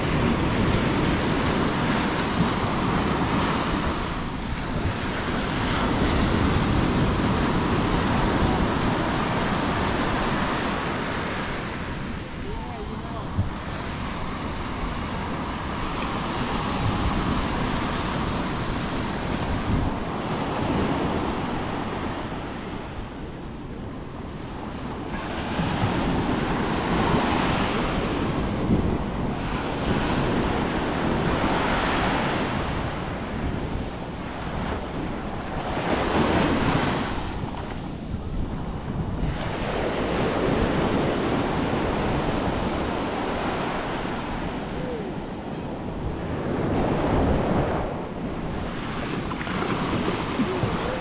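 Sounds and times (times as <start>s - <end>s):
surf breaking on sand: 0.0s - 23.4s, 24.4s - 51.0s.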